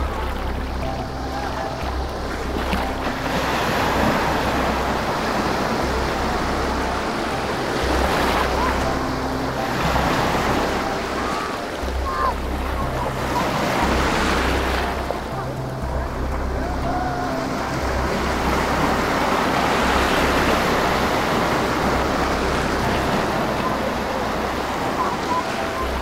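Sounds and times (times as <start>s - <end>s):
ocean waves breaking: 0.0s - 26.0s.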